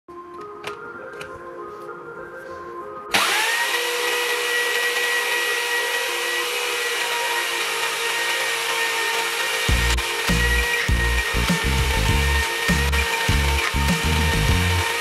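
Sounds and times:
jigsaw motor whining: 3.1s - 15.0s.

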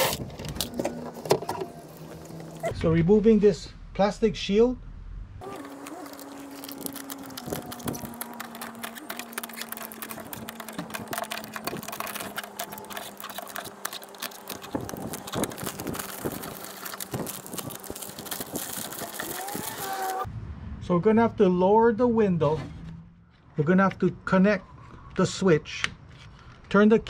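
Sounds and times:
plastic sheet peeling and crinkling: 0.0s - 2.7s, 5.4s - 20.3s.

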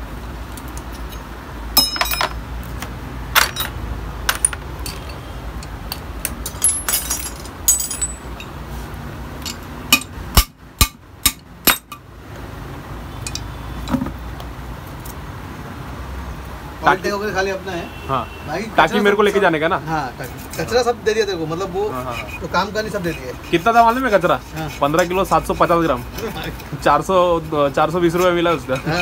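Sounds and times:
metallic clinks and knocks: 0.6s - 2.4s, 3.3s - 8.6s, 9.4s - 12.0s, 13.2s - 14.1s.

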